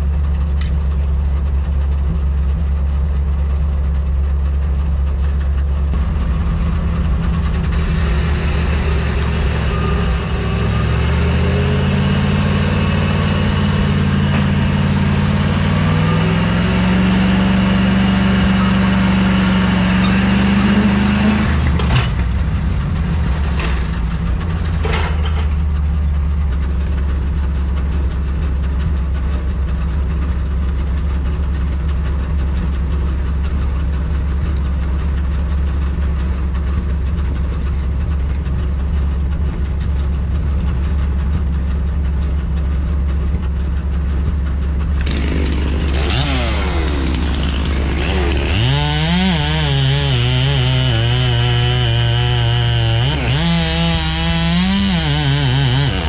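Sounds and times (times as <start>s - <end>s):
truck engine revving: 4.4s - 29.9s, 37.2s - 56.0s
sharp metallic knocks: 13.4s - 15.4s, 19.4s - 25.8s.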